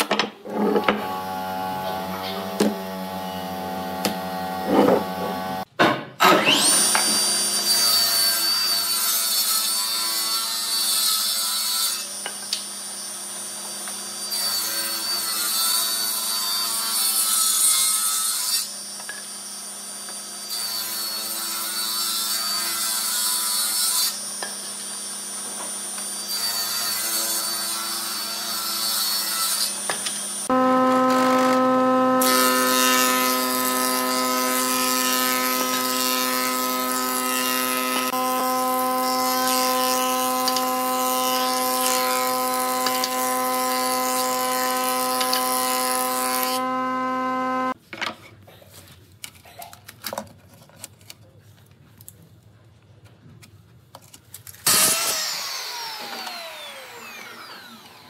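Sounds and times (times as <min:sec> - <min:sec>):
table saw cutting wood: 0:00.0 - 0:47.8, 0:54.6 - 0:58.0
wood planer humming: 0:00.4 - 0:05.7, 0:06.3 - 0:08.6, 0:27.0 - 0:47.8, 0:54.7 - 0:58.0.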